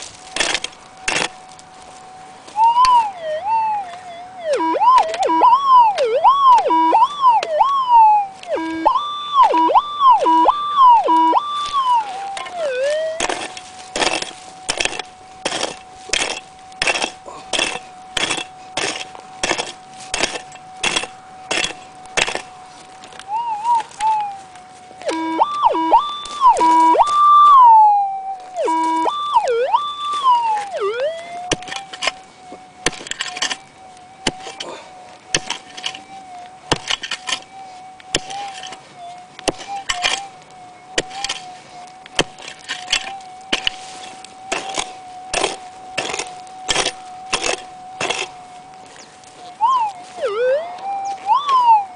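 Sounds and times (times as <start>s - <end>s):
pick striking stony soil: 0.0s - 1.6s, 4.5s - 24.4s, 28.4s - 32.2s, 32.8s - 33.6s, 34.2s - 34.7s, 35.3s - 36.1s, 36.7s - 37.5s, 38.1s - 38.8s, 39.4s - 40.3s, 41.0s - 51.8s
metal detector hum: 2.5s - 22.5s, 25.0s - 31.8s
metal detector warbling signals: 2.6s - 22.4s, 23.3s - 32.0s, 38.2s - 40.4s, 42.7s - 51.9s.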